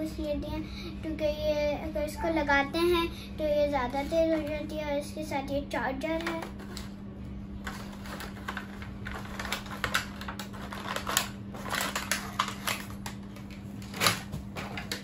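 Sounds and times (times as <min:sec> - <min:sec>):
plastic packaging clicks and crackles: 0:07.6 - 0:15.0.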